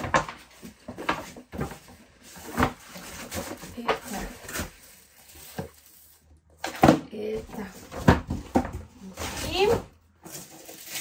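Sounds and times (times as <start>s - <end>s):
paper bag rustling and crinkling: 0.0s - 6.6s, 8.9s - 11.0s.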